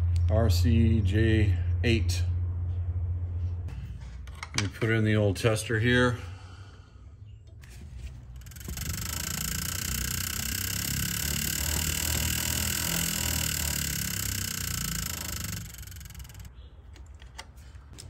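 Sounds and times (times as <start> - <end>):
buzz coil buzzing: 8.4 - 16.5.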